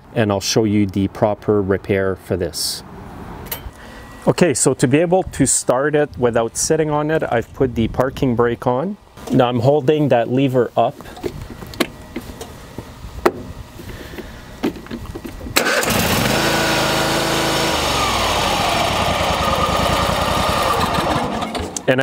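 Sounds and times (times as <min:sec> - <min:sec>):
electric starter cranking engine: 0:15.6 - 0:21.9
lawn tractor engine running: 0:15.6 - 0:21.9.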